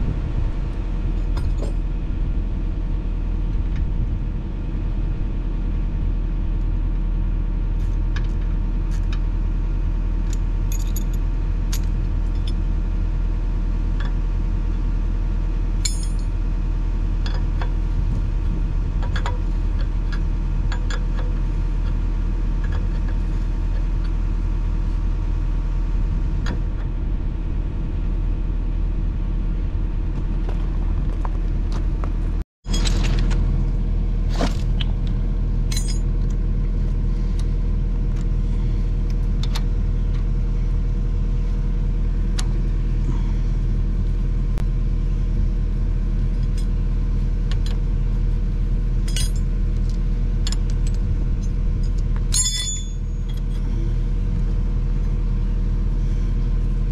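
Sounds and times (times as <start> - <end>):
engine idling: 0.0 - 56.9
wrench clinking on metal fittings: 52.3 - 53.0.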